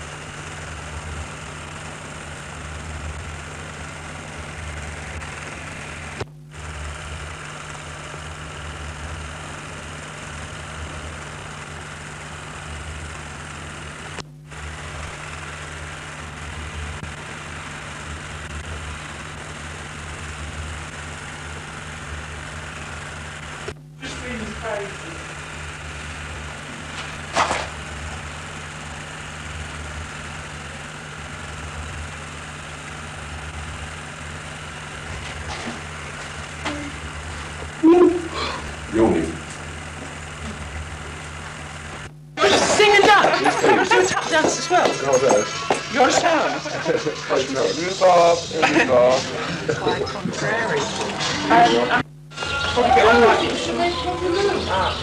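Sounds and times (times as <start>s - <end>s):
low electrical hum: 0.0s - 55.0s
steady hiss: 45.4s - 52.6s.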